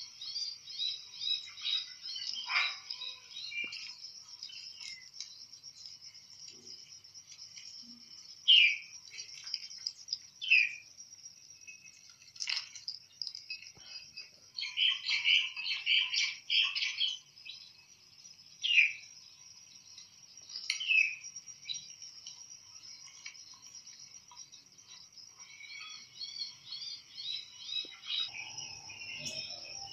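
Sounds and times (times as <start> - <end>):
insect trill: 0.0 - 29.9
parakeet chirping: 1.5 - 3.8.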